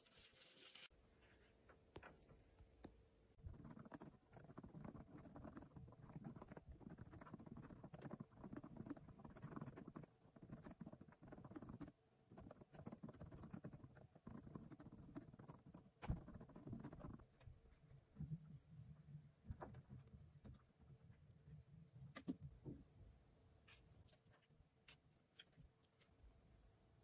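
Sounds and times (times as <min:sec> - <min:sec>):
typing on laptop keyboard: 0:03.5 - 0:17.3.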